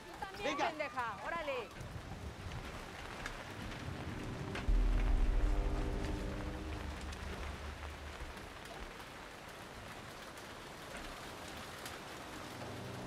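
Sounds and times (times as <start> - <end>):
steady rain-like hiss: 0.0 - 13.0
low hum: 3.5 - 9.3, 12.3 - 13.0.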